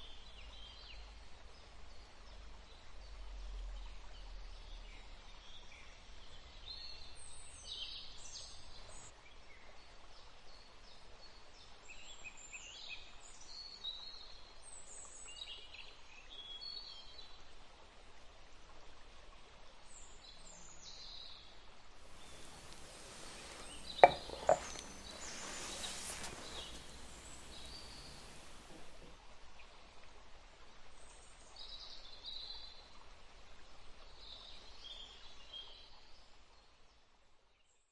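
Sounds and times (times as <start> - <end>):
sharp knocks: 22.2 - 29.0
birds chirping: 22.2 - 29.1.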